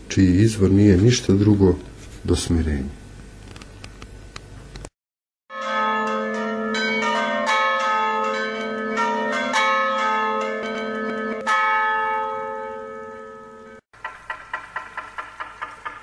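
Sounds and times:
church bells ringing: 5.5 - 13.8.

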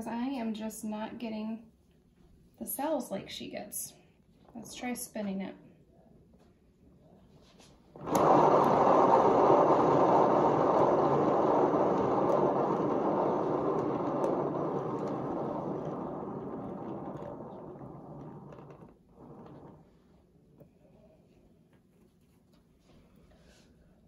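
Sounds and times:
turntable bearing rumbling: 8.0 - 20.0.

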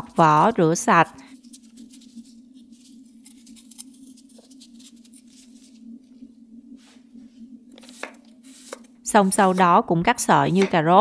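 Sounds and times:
low hum: 0.0 - 10.8
knife scraping root skin: 2.8 - 5.5.

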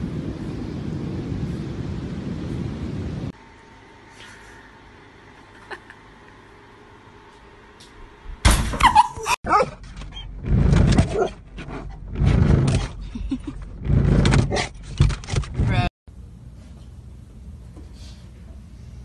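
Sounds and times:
dog barking in a car: 8.9 - 9.8.

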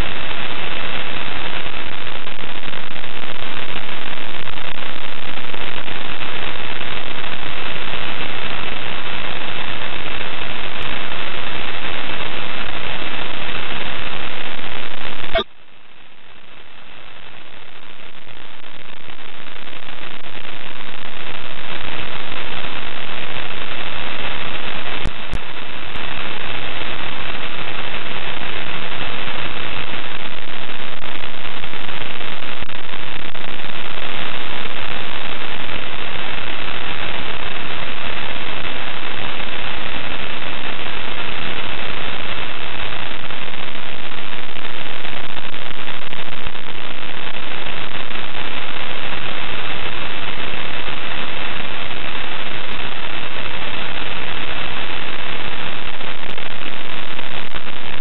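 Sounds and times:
loud static hiss: 0.0 - 58.0.

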